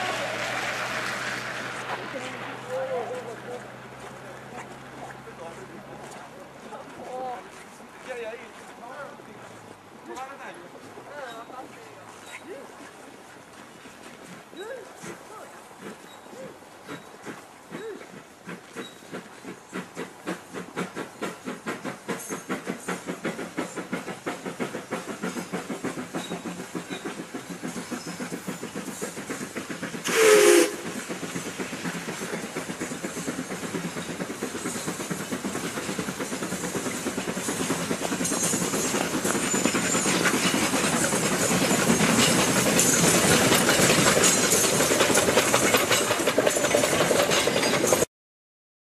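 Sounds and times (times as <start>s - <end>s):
steam hissing: 0.0s - 5.7s, 15.0s - 48.1s
steam locomotive exhaust beats: 0.0s - 9.9s, 15.0s - 48.1s
steam whistle blast: 30.0s - 30.8s.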